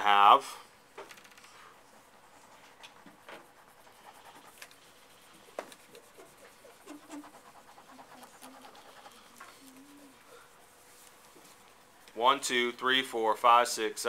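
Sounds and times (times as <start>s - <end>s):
pen tapping and scratching whiteboard: 0.9s - 9.8s.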